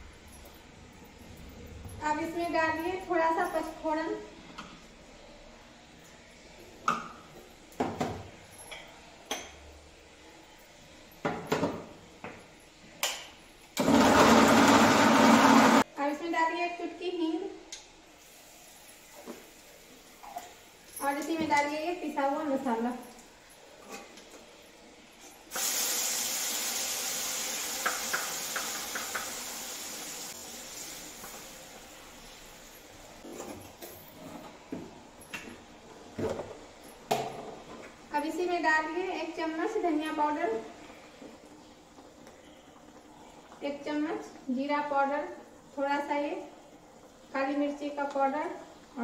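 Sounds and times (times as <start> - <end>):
electric mixer grinder running: 13.8 - 15.8
paste sizzling in hot oil: 25.5 - 32.6.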